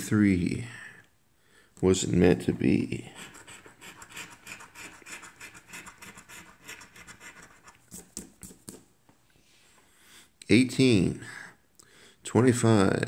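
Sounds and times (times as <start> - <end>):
lottery ticket being scratched: 3.2 - 8.8.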